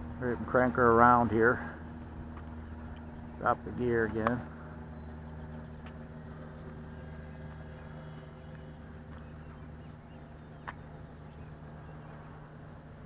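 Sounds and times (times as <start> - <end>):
electric motor and propeller hum: 0.0 - 13.0.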